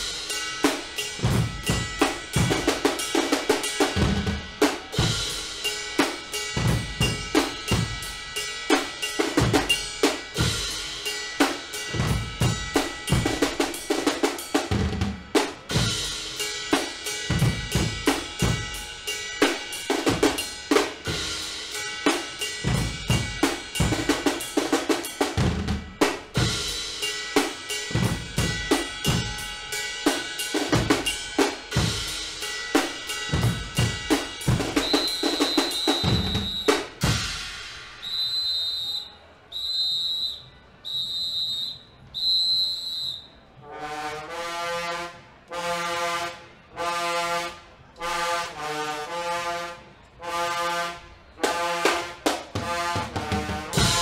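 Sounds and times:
bass drums: 0:00.0 - 0:08.3, 0:08.9 - 0:11.0, 0:12.0 - 0:16.3, 0:17.3 - 0:18.9, 0:22.6 - 0:26.9, 0:27.9 - 0:29.6, 0:30.6 - 0:38.0, 0:52.6 - 0:54.0
drum kit with cymbals: 0:00.0 - 0:39.2, 0:51.4 - 0:54.0
snare drums: 0:00.0 - 0:40.4, 0:50.3 - 0:54.0
brass holding notes: 0:32.7 - 0:36.9, 0:43.0 - 0:54.0.

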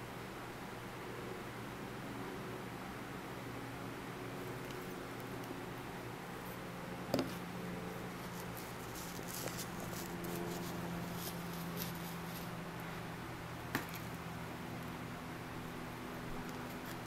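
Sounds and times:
steady low hum: 0:00.0 - 0:17.0
felt and cardboard rustling: 0:08.1 - 0:12.6.

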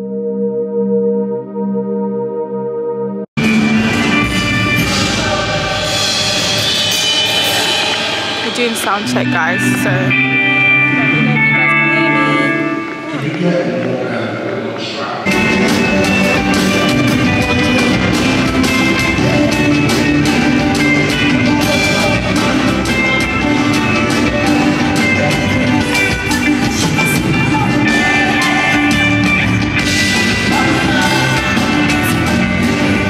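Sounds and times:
keyboards: 0:00.0 - 0:33.0
drum kit: 0:03.4 - 0:10.2, 0:15.3 - 0:33.0
electric guitars: 0:03.4 - 0:33.0
cymbals crashing: 0:03.8 - 0:10.5
person singing: 0:15.3 - 0:33.0.

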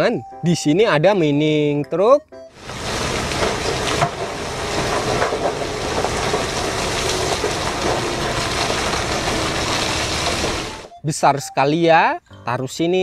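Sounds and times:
falling rock knocks: 0:02.6 - 0:10.9
rock and coal pouring out: 0:02.6 - 0:10.9.

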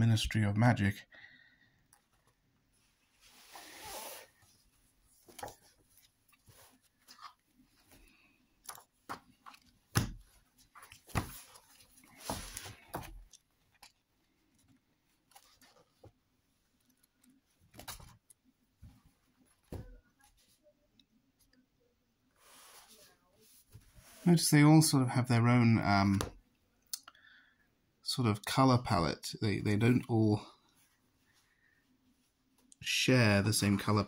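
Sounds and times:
book pages turning: 0:05.2 - 0:18.4.

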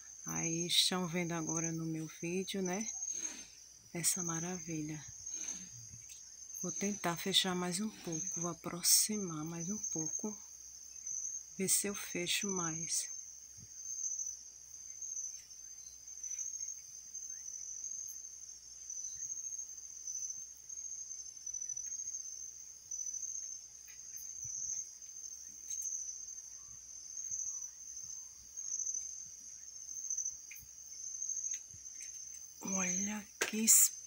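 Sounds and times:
crickets chirping: 0:00.0 - 0:34.0
faint ticks: 0:05.9 - 0:06.3, 0:23.4 - 0:26.0, 0:30.2 - 0:30.7, 0:31.4 - 0:32.5.

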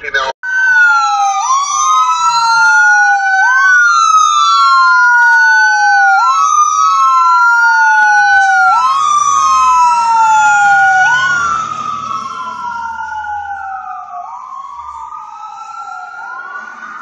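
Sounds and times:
fire engine wail siren: 0:00.4 - 0:17.0
low engine rumble: 0:08.7 - 0:17.0.

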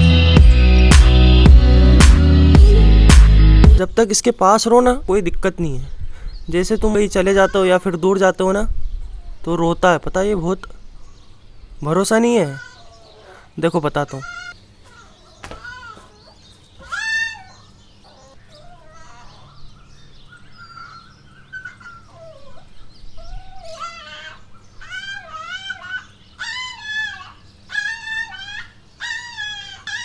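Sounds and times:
puppy crying and whining: 0:15.6 - 0:19.6, 0:20.6 - 0:30.0.

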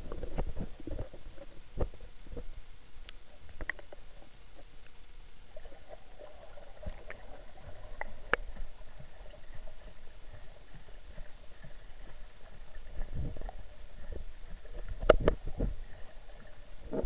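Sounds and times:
muffled underwater water rumble: 0:00.0 - 0:17.0
underwater clicks and pops: 0:03.1 - 0:04.0, 0:14.7 - 0:15.8.

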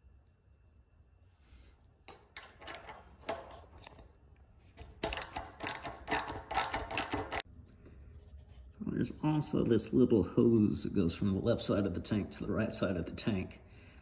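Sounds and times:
socket ratchet clicking: 0:02.1 - 0:04.0, 0:04.8 - 0:07.4.

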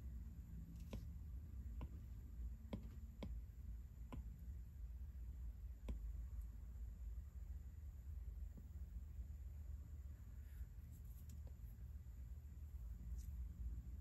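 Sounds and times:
stylus tapping on glass screen: 0:02.7 - 0:03.4, 0:05.8 - 0:06.1.

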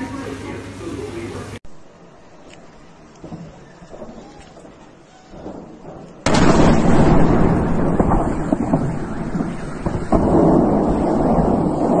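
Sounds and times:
heavy rumble with crackles: 0:02.6 - 0:12.0
sharp crack: 0:03.2 - 0:12.0
large explosion blast: 0:05.4 - 0:12.0.

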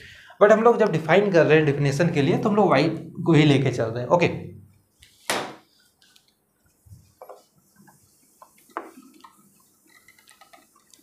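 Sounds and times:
cloth wiping whiteboard: 0:04.9 - 0:10.0.

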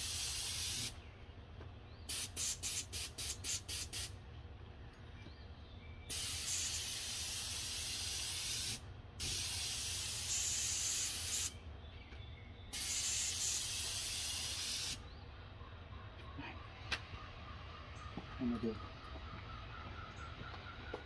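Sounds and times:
paint sprayer hissing: 0:00.0 - 0:01.0, 0:02.1 - 0:04.1, 0:06.1 - 0:11.6, 0:12.7 - 0:15.0.

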